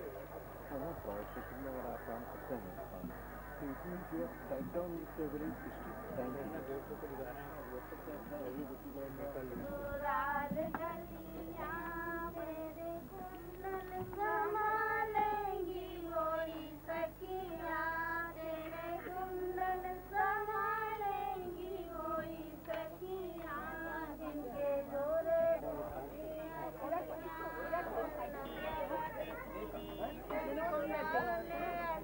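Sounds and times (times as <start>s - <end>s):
steady low hum: 0.0s - 32.0s
woman singing: 9.6s - 32.0s.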